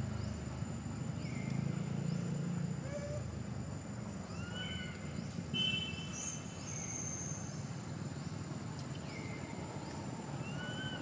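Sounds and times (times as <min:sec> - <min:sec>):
high rising-and-falling calls: 0:04.2 - 0:05.2, 0:09.1 - 0:11.0.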